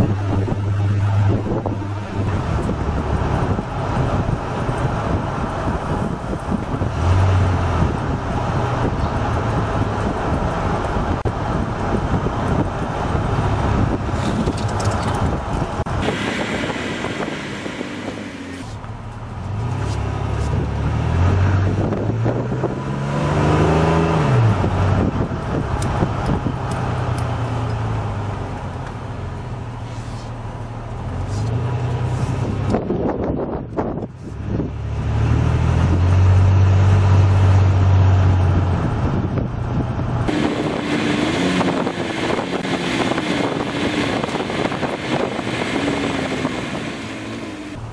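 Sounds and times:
truck engine running: 0:00.0 - 0:22.4, 0:35.8 - 0:47.9
road and wind noise: 0:00.0 - 0:47.9.

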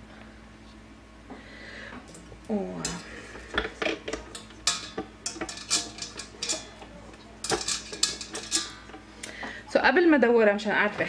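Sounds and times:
metal whisk clinking on steel bowl: 0:02.8 - 0:09.0.

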